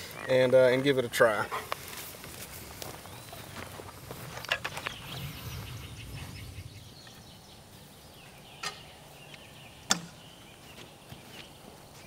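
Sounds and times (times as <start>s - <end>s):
footsteps in grass: 1.7s - 6.6s.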